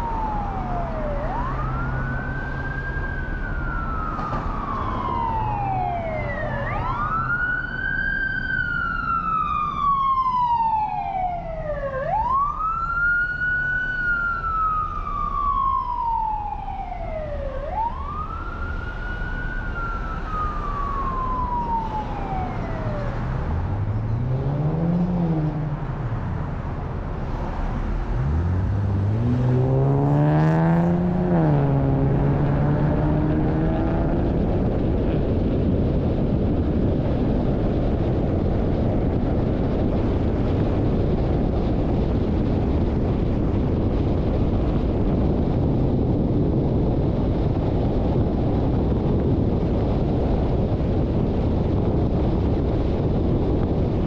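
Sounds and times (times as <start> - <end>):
emergency siren wailing: 0.0 - 26.2, 28.1 - 53.9
traffic and road noise: 0.0 - 54.0
vehicle engine revving: 22.8 - 46.9.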